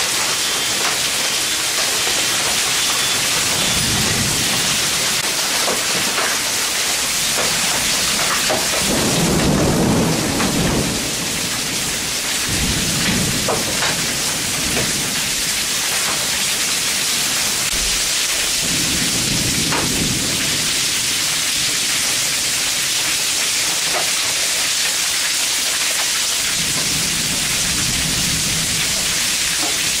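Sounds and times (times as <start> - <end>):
heavy rain falling: 0.0 - 30.0
raindrops ticking: 0.0 - 30.0
rolls of thunder: 8.6 - 15.2, 18.6 - 20.8.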